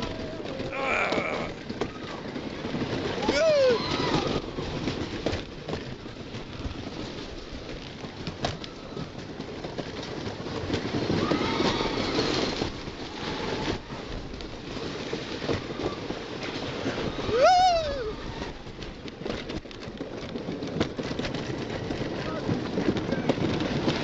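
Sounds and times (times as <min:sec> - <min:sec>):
roller coaster rattling on track: 0:00.0 - 0:24.0
wheels clattering over rail joints: 0:00.0 - 0:24.0
person screaming: 0:00.7 - 0:01.6, 0:03.2 - 0:04.3, 0:17.3 - 0:18.2.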